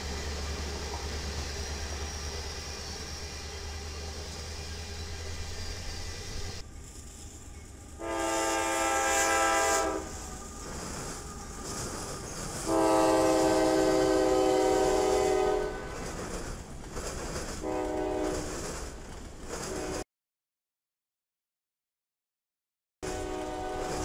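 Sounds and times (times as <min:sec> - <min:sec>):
train wheels rumbling on rails: 0:00.0 - 0:20.0, 0:23.0 - 0:24.0
locomotive air horn blasts: 0:08.0 - 0:10.4, 0:12.6 - 0:16.0, 0:17.6 - 0:18.5, 0:19.7 - 0:20.0, 0:23.0 - 0:24.0.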